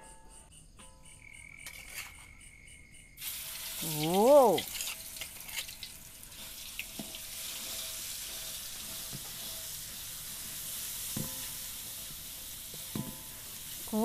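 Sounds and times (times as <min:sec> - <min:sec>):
spice paste sizzling in oil: 0:03.2 - 0:14.0.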